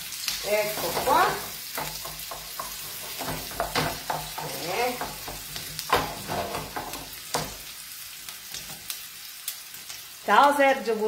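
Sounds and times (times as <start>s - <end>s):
vegetables sizzling in oil: 0.0s - 11.0s
spoon scraping pan: 0.5s - 7.6s
spoon knocking on pan: 0.6s - 7.6s.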